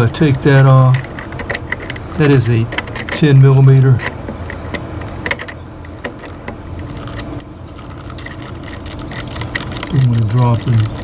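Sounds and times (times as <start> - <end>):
hand tool clicking on metal nut: 0.0 - 6.2
low steady hum: 0.0 - 11.0.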